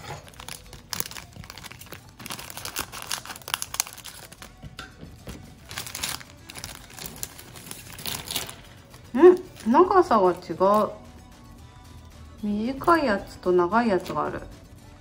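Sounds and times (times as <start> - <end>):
plastic bag crinkling: 0.0 - 4.5, 5.6 - 10.1.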